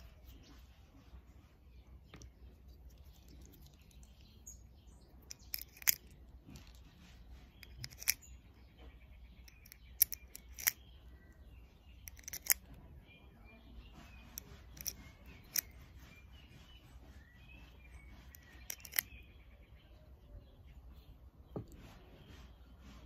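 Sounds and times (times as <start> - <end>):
cartridges clicking into magazine: 7.6 - 8.2, 9.5 - 10.8, 12.1 - 12.6.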